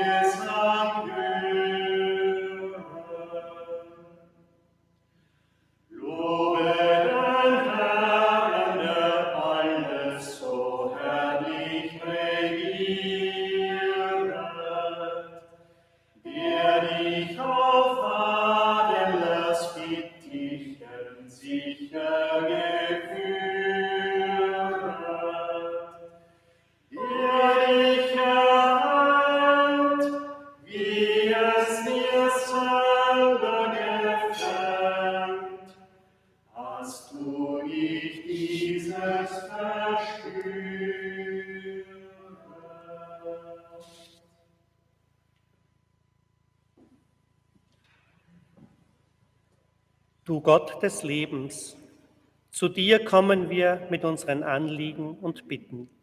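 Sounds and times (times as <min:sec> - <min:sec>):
group singing a hymn unaccompanied: 0:00.0 - 0:04.2, 0:05.9 - 0:15.6, 0:16.2 - 0:26.2, 0:26.9 - 0:35.9, 0:36.5 - 0:44.2.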